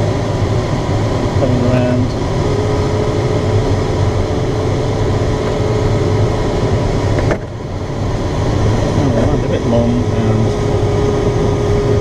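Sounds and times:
air rushing past cockpit: 0.0 - 12.0.

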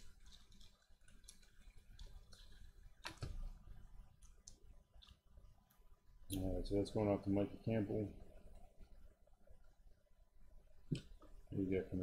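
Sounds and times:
trading cards and wrappers handled: 0.0 - 3.4.

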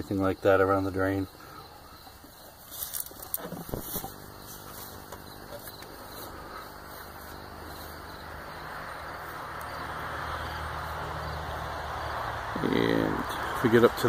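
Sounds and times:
low steady motor-like hum: 3.6 - 14.0.

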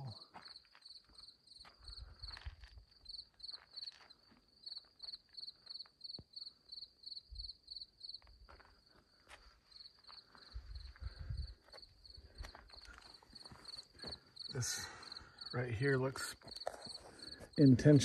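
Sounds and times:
cricket chirping: 0.0 - 18.0.

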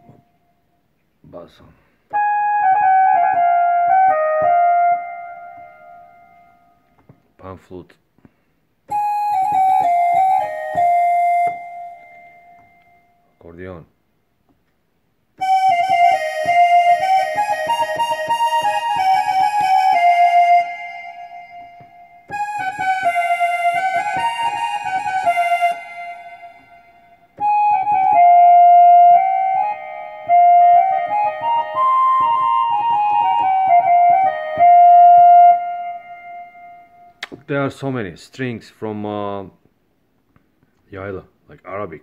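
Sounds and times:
keyboard accordion melody: 2.1 - 6.8, 8.9 - 13.2, 15.4 - 37.3.

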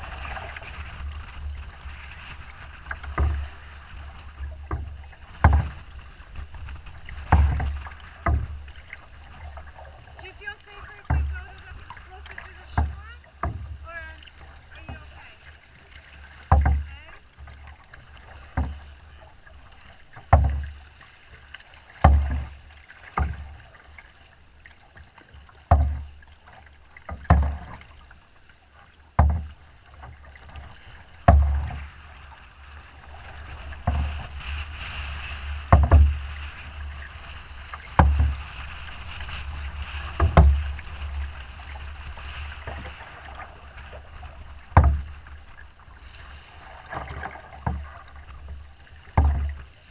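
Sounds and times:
wind rumble on microphone: 0.0 - 15.4, 30.5 - 49.9
water slapping canoe hull: 0.0 - 49.9
rushing water hiss: 30.3 - 49.9.

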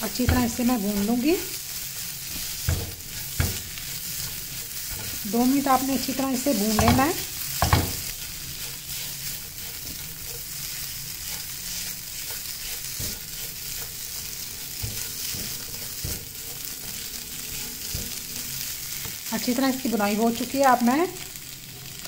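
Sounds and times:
spatula scraping pan: 0.0 - 19.3
chicken sizzling in frying pan: 0.0 - 22.0
spatula knocking pan: 0.1 - 1.3, 2.0 - 10.5, 11.1 - 18.2.

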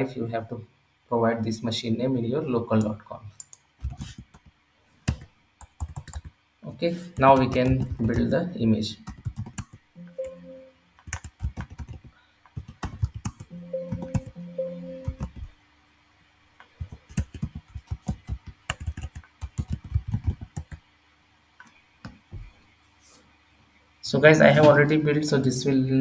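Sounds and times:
keyboard typing: 5.1 - 6.3, 7.2 - 8.3, 9.0 - 15.5, 16.7 - 20.8
low steady tones: 10.0 - 11.0, 13.4 - 15.5.

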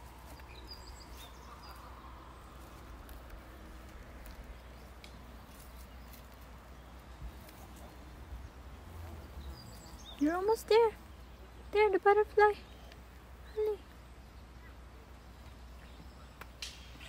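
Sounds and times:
bird chirps: 0.0 - 3.0, 8.4 - 11.7
light clicks and rustles: 2.6 - 8.1.

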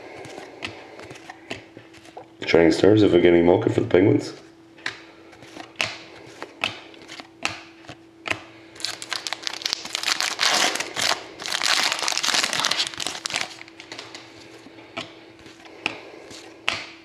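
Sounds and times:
foil wrapper tearing and crinkling: 8.8 - 14.1.

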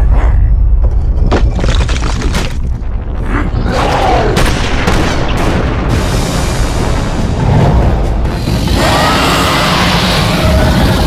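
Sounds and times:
deep rumble: 0.0 - 8.9
cartoon explosion booms: 3.2 - 6.4.

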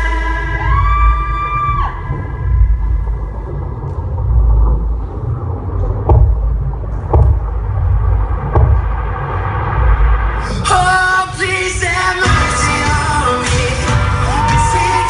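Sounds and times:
song with singing: 0.0 - 2.9, 10.4 - 15.0
deep rumbling bass music: 0.0 - 15.0.

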